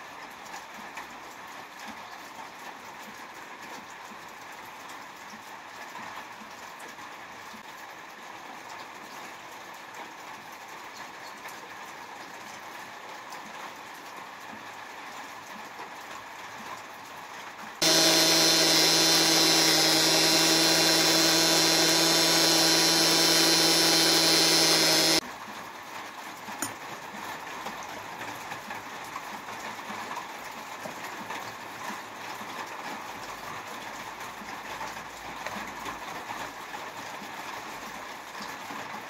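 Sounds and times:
electric coffee grinder running: 17.8 - 25.2.

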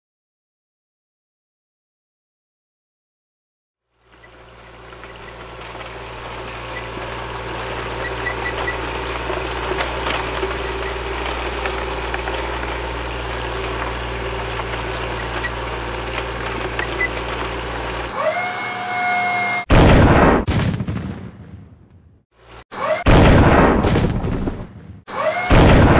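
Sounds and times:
tank engine rumble: 3.9 - 19.9
rising mechanical whine: 4.0 - 20.5.

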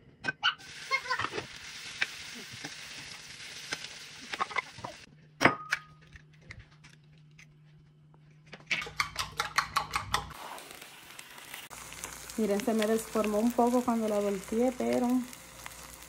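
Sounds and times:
potato slices sizzling in a pan: 0.6 - 5.1, 10.3 - 16.0
spatula clicking in a pan: 8.7 - 10.4.

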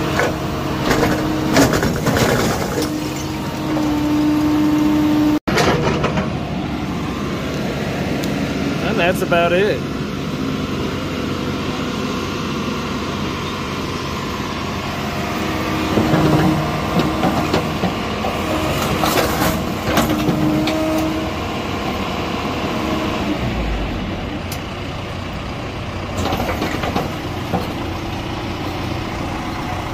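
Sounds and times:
diesel engine running: 0.0 - 29.9
hydraulic whine under load: 9.8 - 29.9.

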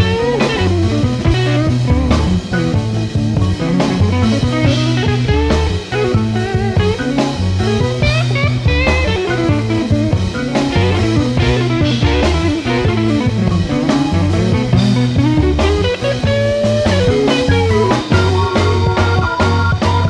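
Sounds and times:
blues-rock band playing: 0.0 - 20.0.

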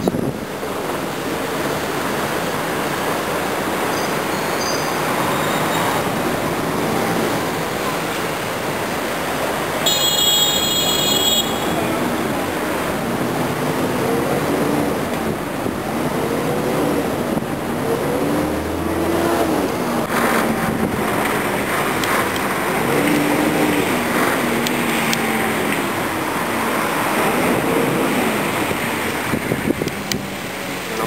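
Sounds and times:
wind on microphone: 0.0 - 2.4, 11.8 - 31.0
city traffic: 0.0 - 31.0
bus engine revving: 5.0 - 10.4, 11.3 - 31.0.

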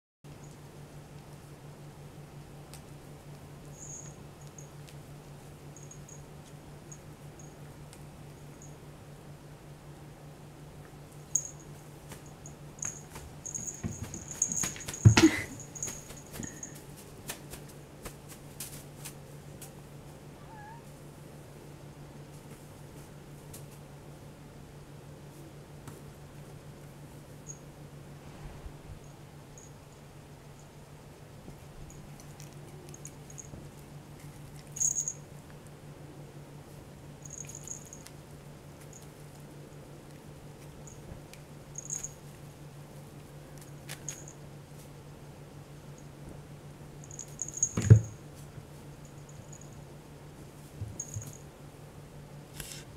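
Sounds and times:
faint low hum: 0.3 - 52.9
small bell jingling: 3.7 - 4.8, 5.7 - 6.3, 11.3 - 16.8, 34.6 - 35.2, 37.2 - 38.1, 41.8 - 42.2, 47.0 - 48.2, 49.0 - 49.8, 51.0 - 51.4
cat meowing: 20.4 - 20.9.

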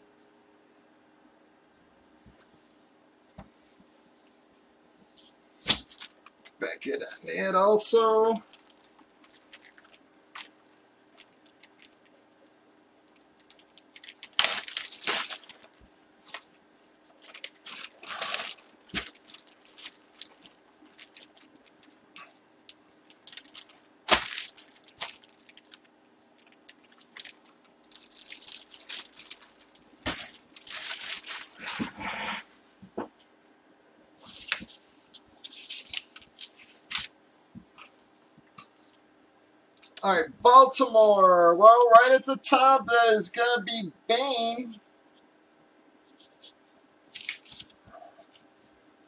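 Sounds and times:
rustling of packages: 3.3 - 6.6, 8.0 - 32.4, 34.0 - 39.0, 46.1 - 49.0.

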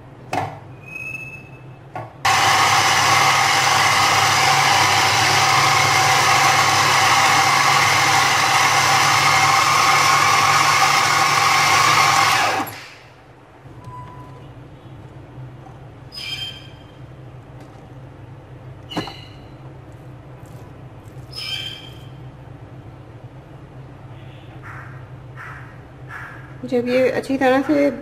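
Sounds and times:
food chopper motor running: 2.3 - 12.9.

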